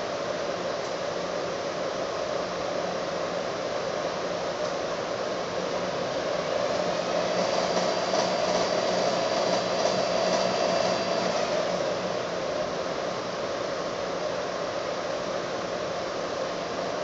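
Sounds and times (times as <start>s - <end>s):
stand mixer running: 6.2s - 12.7s.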